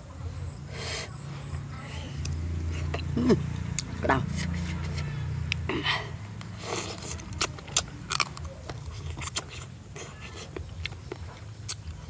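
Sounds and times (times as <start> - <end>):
steady low hum: 0.0 - 12.0
chewing: 6.4 - 12.0.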